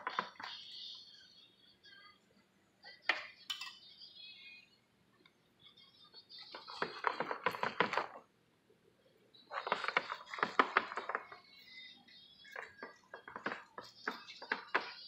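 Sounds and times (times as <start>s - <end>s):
metal utensils on ceramic plate: 3.5s - 3.9s.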